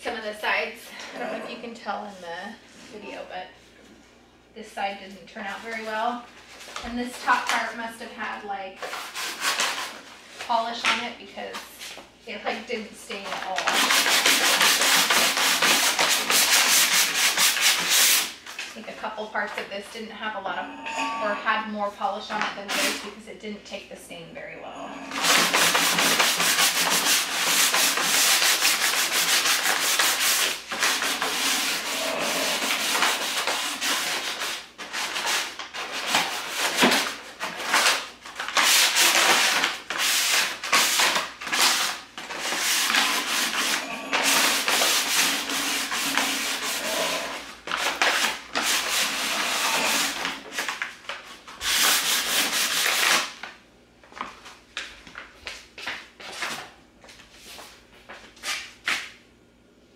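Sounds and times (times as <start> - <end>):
sandpaper rasping on wood: 13.7 - 18.3, 25.2 - 35.5, 42.4 - 47.4, 48.6 - 50.3.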